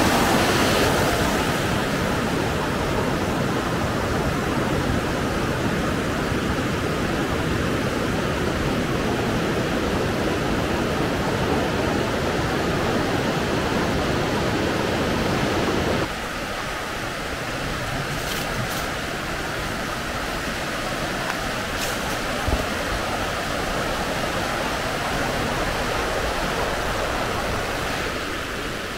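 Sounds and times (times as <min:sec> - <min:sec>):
water rushing: 0:00.0 - 0:28.9.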